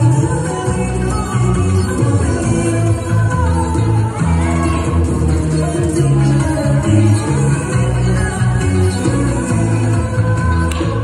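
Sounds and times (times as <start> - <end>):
salsa music over loudspeaker: 0.0 - 11.0.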